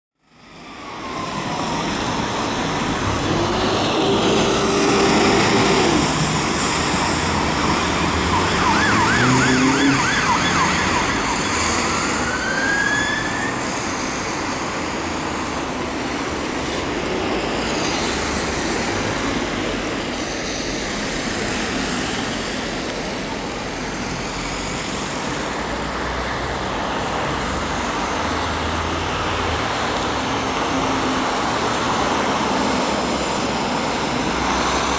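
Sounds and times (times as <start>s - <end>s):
road traffic noise: 0.2s - 34.9s
fire engine siren: 0.4s - 15.0s.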